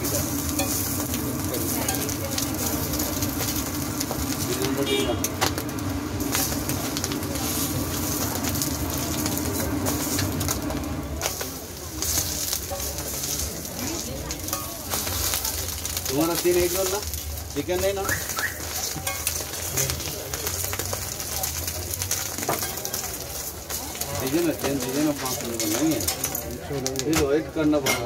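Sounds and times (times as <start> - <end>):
frying hiss: 0.0 - 28.0
metal spatula scraping griddle: 6.3 - 21.4, 22.1 - 27.2.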